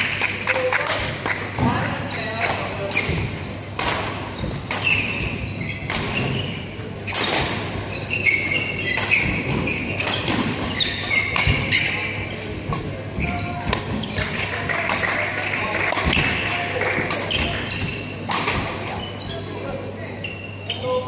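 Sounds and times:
racquet hitting shuttlecock: 0:02.5 - 0:07.7, 0:08.8 - 0:12.0, 0:15.9 - 0:18.8
shoes squeaking on court floor: 0:04.1 - 0:14.5, 0:17.2 - 0:21.0.

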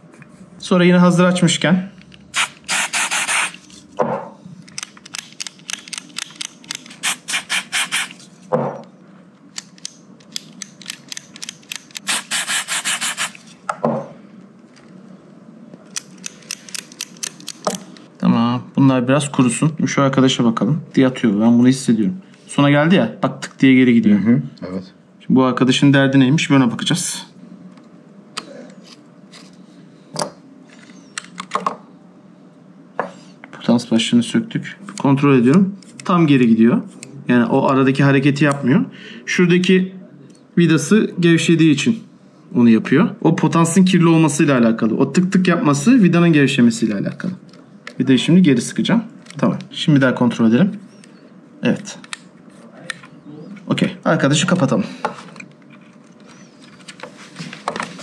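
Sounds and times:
contact cleaner spray hissing: 0:02.4 - 0:03.6, 0:07.0 - 0:08.2, 0:12.1 - 0:13.4.

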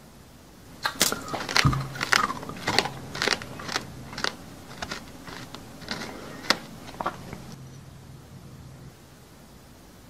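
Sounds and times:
crunchy chewing: 0:00.8 - 0:07.6.

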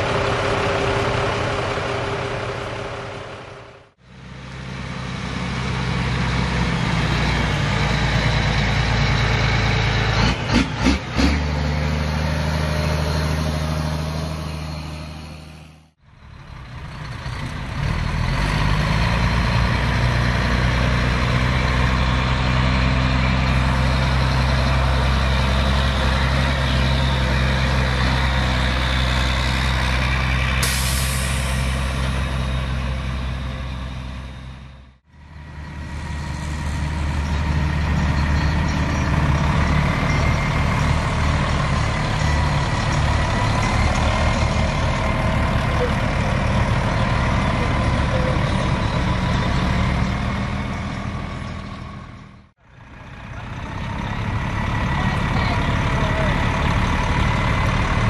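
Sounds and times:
diesel truck engine running: 0:00.0 - 0:58.0
loud air hiss: 0:30.6 - 0:31.8.

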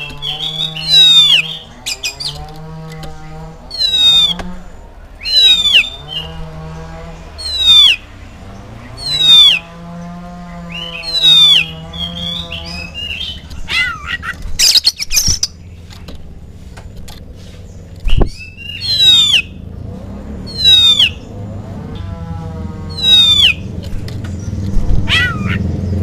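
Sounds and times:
bird whistling downward: 0:00.0 - 0:02.4, 0:03.7 - 0:04.5, 0:05.2 - 0:06.4, 0:07.4 - 0:08.1, 0:08.9 - 0:09.7, 0:10.6 - 0:15.5, 0:18.1 - 0:19.6, 0:20.4 - 0:21.4, 0:22.9 - 0:23.7, 0:25.0 - 0:25.6
bird harsh scratchy chattering: 0:00.0 - 0:06.4, 0:10.6 - 0:15.9, 0:24.7 - 0:25.6.

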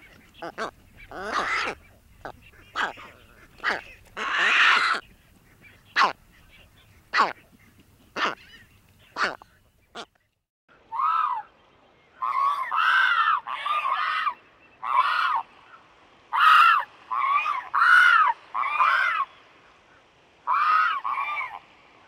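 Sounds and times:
pelicans honking: 0:00.0 - 0:05.0, 0:05.9 - 0:06.2, 0:07.1 - 0:07.4, 0:08.2 - 0:09.4.

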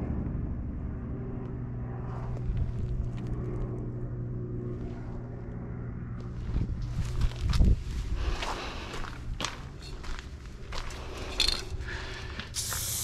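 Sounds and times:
engine drone: 0:00.0 - 0:13.0
footsteps on gravel: 0:06.2 - 0:12.8.

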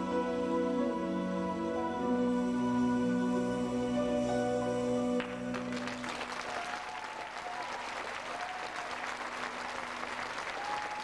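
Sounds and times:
held music chord: 0:00.0 - 0:06.0
audience applause: 0:05.2 - 0:11.0.

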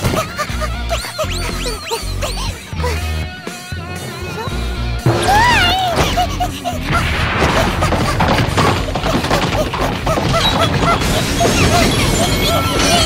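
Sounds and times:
cartoon voice squealing: 0:00.0 - 0:08.4, 0:09.1 - 0:13.0
background music: 0:00.0 - 0:13.0
comic crashes: 0:03.8 - 0:13.0.

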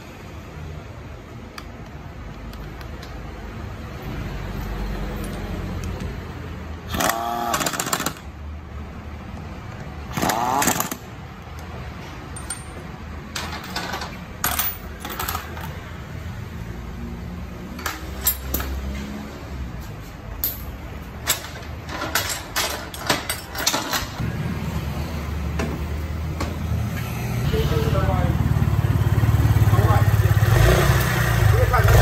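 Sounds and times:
impact wrench running bolts: 0:06.9 - 0:08.3, 0:10.1 - 0:11.1.

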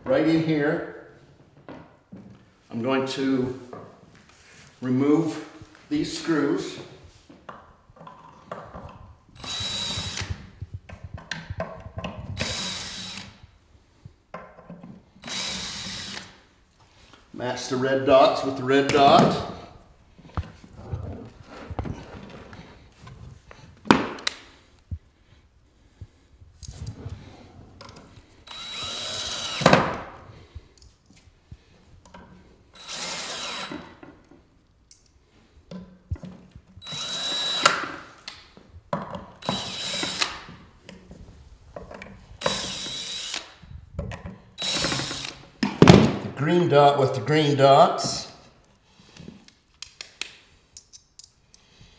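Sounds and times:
cordless drill driving screws: 0:09.4 - 0:10.5, 0:12.4 - 0:13.4, 0:15.2 - 0:16.4, 0:28.4 - 0:30.1, 0:32.8 - 0:34.0, 0:36.8 - 0:38.4, 0:39.4 - 0:40.6, 0:42.4 - 0:43.6, 0:44.6 - 0:45.5.

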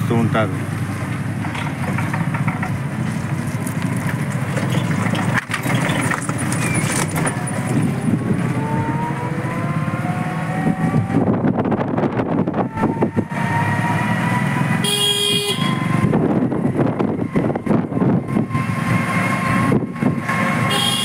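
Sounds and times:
auto-rickshaw engine running: 0:00.0 - 0:21.0
rising whine: 0:07.2 - 0:14.8.

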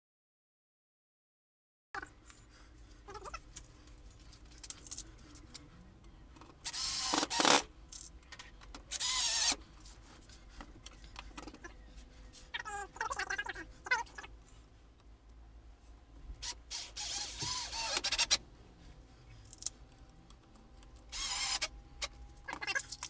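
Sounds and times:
cordless drill drilling into wood: 0:06.6 - 0:07.7, 0:08.9 - 0:09.6, 0:16.4 - 0:18.4, 0:21.1 - 0:21.7.

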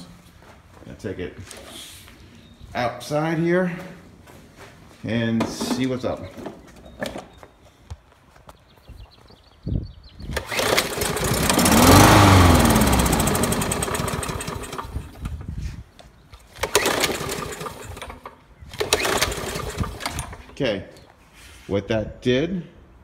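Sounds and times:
lawn mower engine running: 0:10.3 - 0:15.5, 0:16.5 - 0:20.6.

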